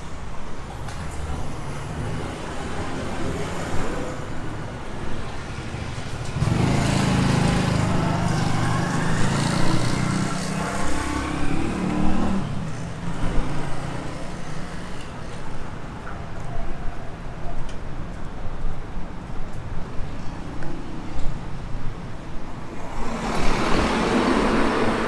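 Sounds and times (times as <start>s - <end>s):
street traffic: 0.0s - 25.0s
vehicle engine passing close by: 6.4s - 12.6s, 22.9s - 25.0s.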